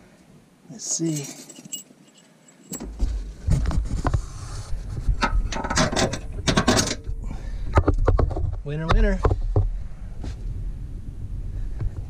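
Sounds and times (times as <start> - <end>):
metal bolt clicking and scraping: 1.2 - 3.6, 5.2 - 7.1
low microphone handling rumble: 2.8 - 12.0.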